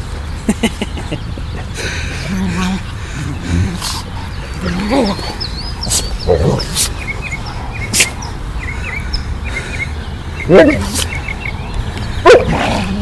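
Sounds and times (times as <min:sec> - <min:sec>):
small birds chirping: 0:00.0 - 0:13.0
dogs growling: 0:01.8 - 0:08.4, 0:12.2 - 0:13.0.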